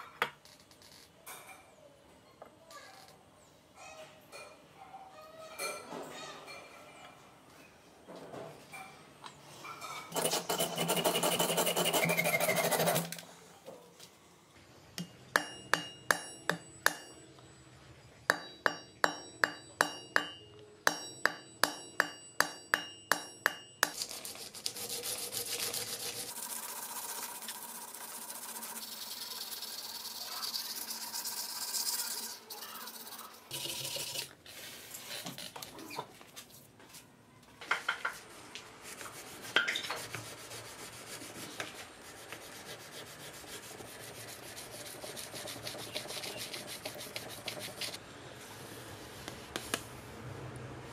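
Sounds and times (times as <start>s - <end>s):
filing and rubbing metal: 10.0s - 13.2s, 24.0s - 35.5s, 38.9s - 48.0s
hammer striking metal: 15.0s - 17.2s, 18.3s - 24.0s.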